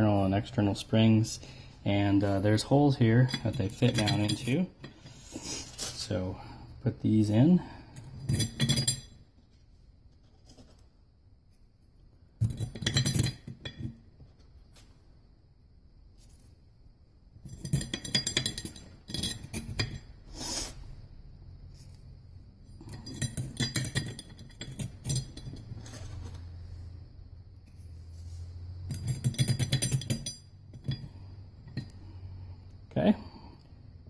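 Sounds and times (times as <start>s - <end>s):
coil springs clinking on metal: 3.2s - 5.0s, 8.0s - 9.2s, 28.8s - 32.0s.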